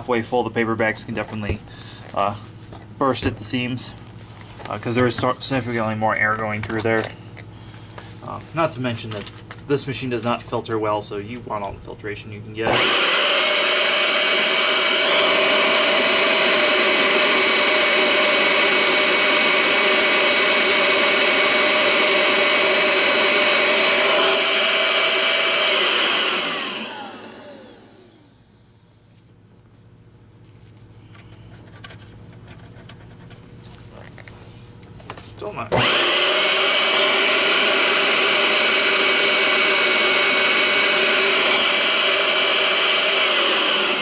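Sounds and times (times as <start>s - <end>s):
vacuum motor running: 12.6s - 28.6s, 35.6s - 44.0s.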